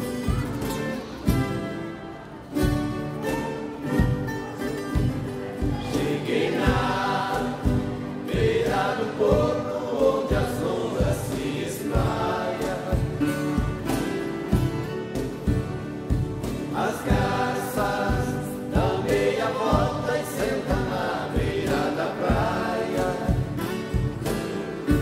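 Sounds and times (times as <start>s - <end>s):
folk guitars strumming: 0.0s - 25.0s
group of voices singing: 5.2s - 25.0s.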